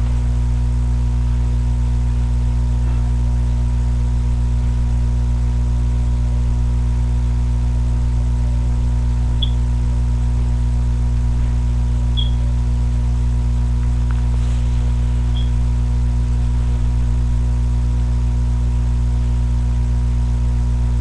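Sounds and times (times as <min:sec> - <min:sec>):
electrical mains hum: 0:00.0 - 0:21.0
faint high chirp: 0:09.4 - 0:09.6, 0:12.2 - 0:12.4, 0:15.3 - 0:15.6.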